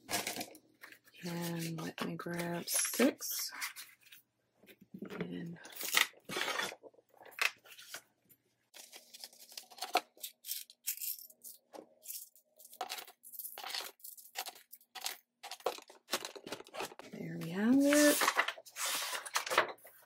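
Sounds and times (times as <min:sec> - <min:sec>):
paper money rustling: 0:08.7 - 0:20.0.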